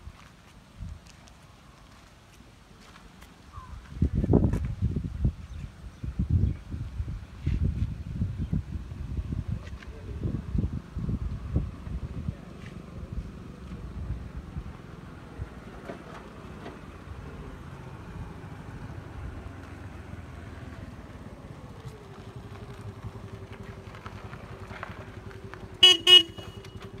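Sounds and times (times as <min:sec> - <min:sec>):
vehicle engine hum: 0:00.0 - 0:27.0
wind buffeting microphone: 0:03.6 - 0:15.7
vehicle horn honking: 0:25.8 - 0:27.0.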